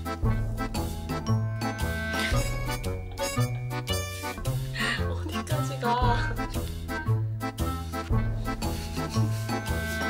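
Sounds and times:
bouncy instrumental music: 0.0s - 10.0s.

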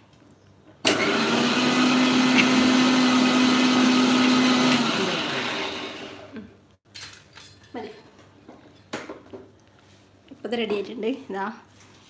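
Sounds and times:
electric mixer grinder whining: 0.8s - 6.4s.

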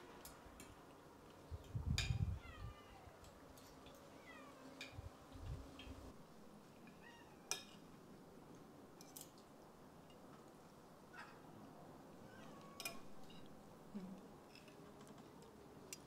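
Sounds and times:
cutlery clinking on plates: 12.8s - 13.5s.

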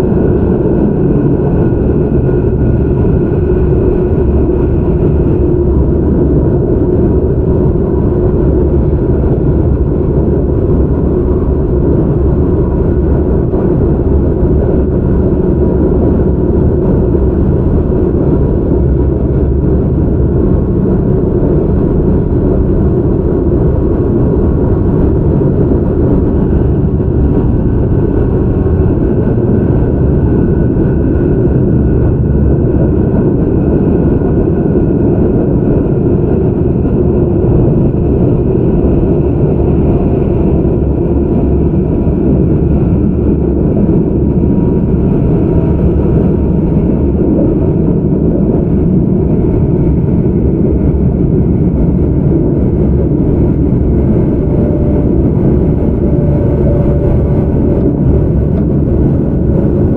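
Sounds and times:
train wheels rumbling on rail: 0.0s - 59.9s
faint high whine: 52.1s - 59.9s.

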